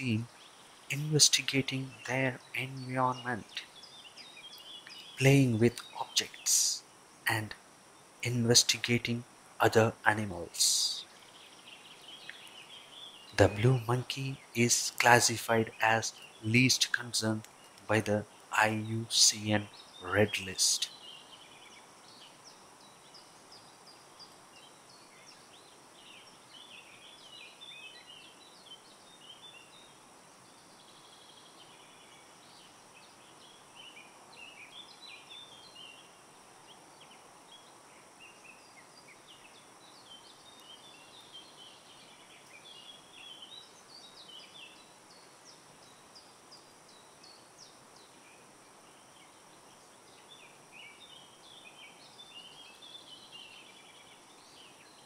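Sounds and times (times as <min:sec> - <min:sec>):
birds chirping: 0:00.0 - 0:07.6, 0:08.2 - 0:46.3
steady background hiss: 0:00.0 - 0:55.0.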